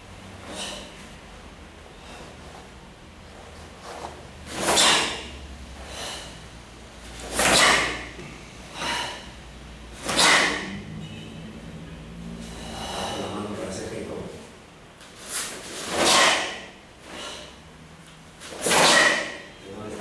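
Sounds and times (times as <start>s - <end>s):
sharp forceful exhalations: 0.4s - 1.1s, 4.5s - 6.5s, 7.2s - 9.4s, 10.0s - 11.2s, 12.3s - 13.4s, 15.2s - 17.6s, 18.5s - 19.5s
soft breaths: 0.4s - 1.1s, 1.8s - 4.2s, 4.8s - 6.6s, 8.0s - 9.5s, 12.2s - 13.7s.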